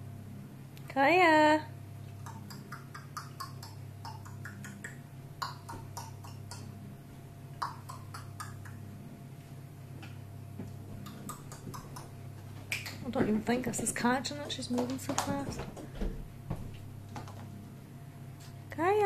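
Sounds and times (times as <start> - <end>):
low room hum: 0.0 - 19.0
lemur grooming clicks and smacks: 2.2 - 6.7, 7.6 - 8.9, 10.7 - 13.4.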